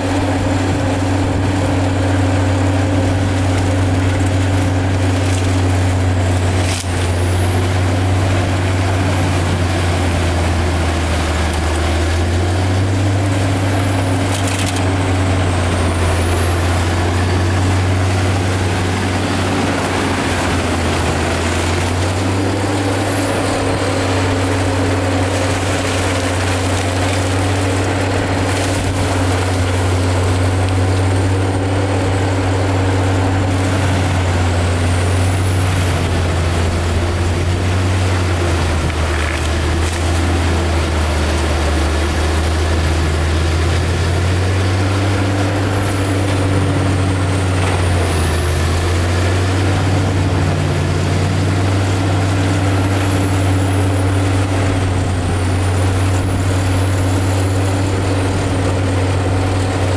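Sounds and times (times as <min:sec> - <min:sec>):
diesel engine droning: 0:00.0 - 0:59.9
high thin whine: 0:00.0 - 0:59.9
rotor head grinding stumps: 0:00.0 - 0:59.9.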